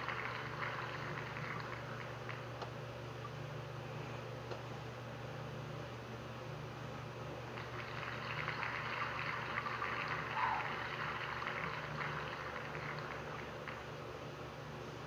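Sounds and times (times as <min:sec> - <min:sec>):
recorded applause: 0:00.0 - 0:02.6, 0:07.6 - 0:14.1
steady low hum: 0:00.0 - 0:15.0.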